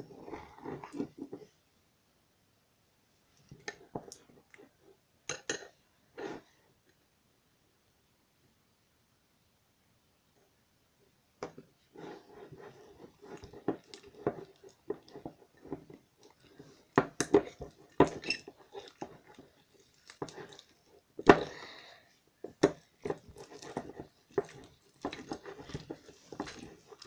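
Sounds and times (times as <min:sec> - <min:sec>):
metal spoon scraping glass bowl: 0:18.0 - 0:19.4.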